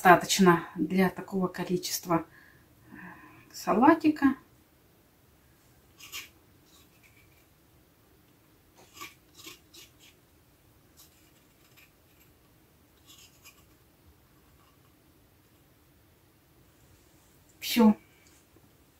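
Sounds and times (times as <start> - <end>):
spatula scraping a cup: 8.8 - 10.2.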